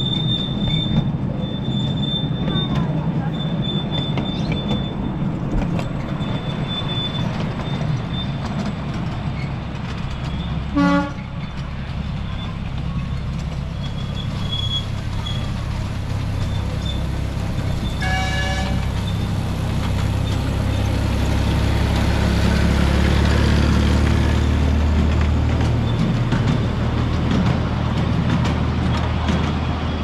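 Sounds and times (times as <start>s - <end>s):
miniature train passing: 0.0s - 30.0s
wheels clicking over track: 0.0s - 30.0s
train horn toot: 10.7s - 11.4s, 17.9s - 19.0s.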